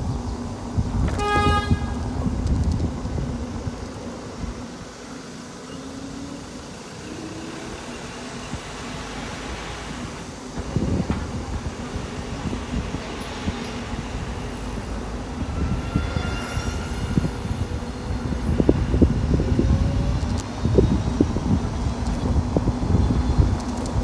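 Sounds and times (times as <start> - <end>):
wind on microphone: 0.0 - 4.9, 10.6 - 24.0
road rumble: 0.0 - 24.0.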